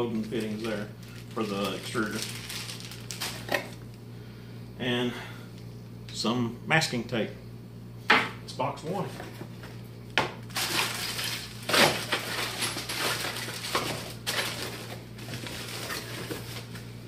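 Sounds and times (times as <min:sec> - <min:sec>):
cardboard and plastic rustling: 0:00.0 - 0:03.9, 0:10.4 - 0:17.0.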